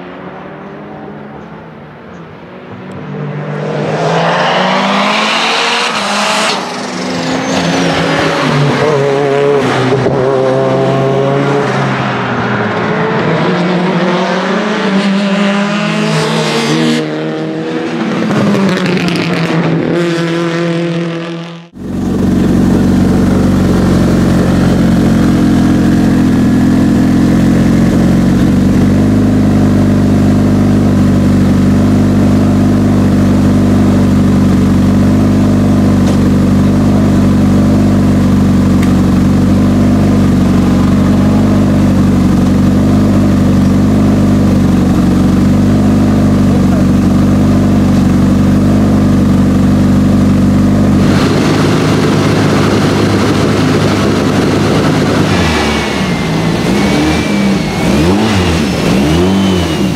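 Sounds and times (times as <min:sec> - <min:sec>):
car engine revving: 0:00.0 - 0:59.9
engine running steadily: 0:21.7 - 0:59.9
engine sharp cracks: 0:51.0 - 0:59.9.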